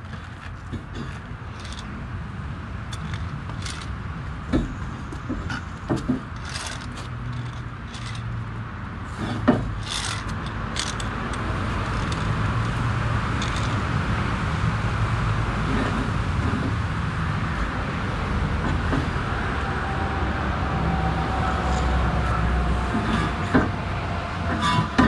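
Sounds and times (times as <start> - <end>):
metal bar scraping: 0.0 - 1.9, 2.9 - 4.0, 4.6 - 8.3, 9.0 - 12.8, 13.4 - 13.8, 21.4 - 23.8, 24.4 - 25.0
road traffic: 0.0 - 25.0.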